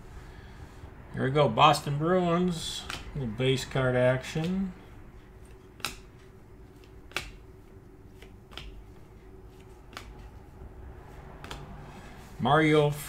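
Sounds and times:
paper cards snapping: 2.8 - 3.2, 5.4 - 7.5, 8.1 - 10.4, 11.4 - 11.7.

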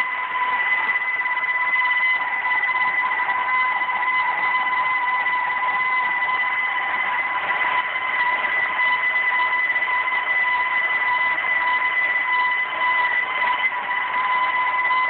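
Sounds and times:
mixer motor whine: 0.0 - 15.0.

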